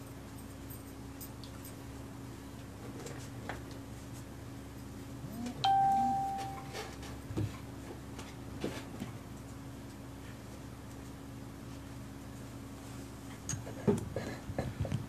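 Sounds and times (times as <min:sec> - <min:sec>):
small bell ringing: 0:05.6 - 0:06.8.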